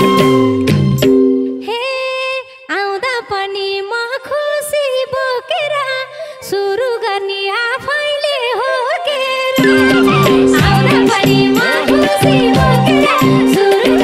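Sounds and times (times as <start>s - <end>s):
woman singing unaccompanied: 1.7s - 14.0s
band accompaniment: 9.6s - 14.0s.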